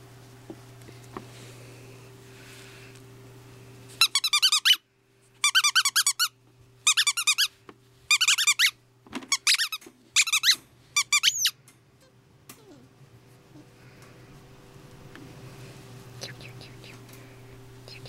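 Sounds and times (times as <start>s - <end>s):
squeaky dog toy squeaking: 4.0s - 4.8s, 5.4s - 7.5s, 8.1s - 11.6s.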